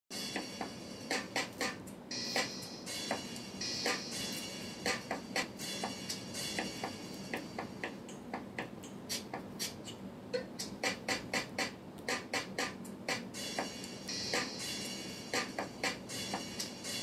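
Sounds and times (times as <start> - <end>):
percussive beat of sharp clicks: 4.9 - 10.0, 10.6 - 13.8.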